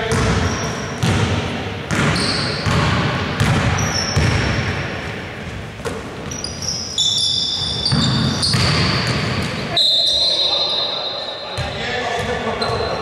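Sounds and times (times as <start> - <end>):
basketball bouncing on wooden floor: 0.0 - 4.7, 7.8 - 9.6
high-pitched shoe squeaks: 2.2 - 2.6, 3.8 - 4.2, 6.3 - 9.1, 9.7 - 11.0.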